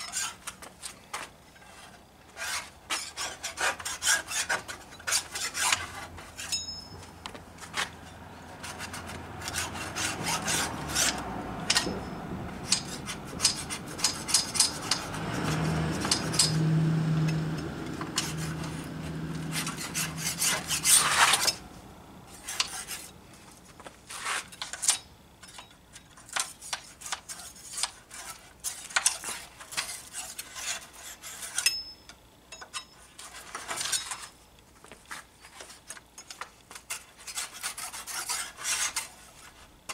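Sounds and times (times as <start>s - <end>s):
scraper scraping wood: 0.0s - 6.5s, 7.6s - 12.0s, 12.6s - 16.6s, 17.2s - 21.6s, 22.3s - 25.0s, 26.2s - 31.6s, 36.7s - 39.7s
low hum: 6.2s - 23.6s.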